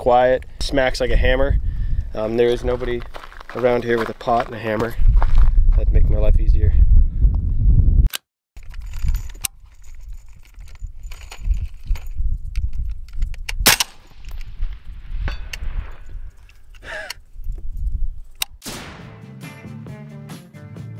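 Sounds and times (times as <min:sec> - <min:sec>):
suppressed rifle shot: 0:18.6 - 0:19.2
music: 0:18.8 - 0:20.9.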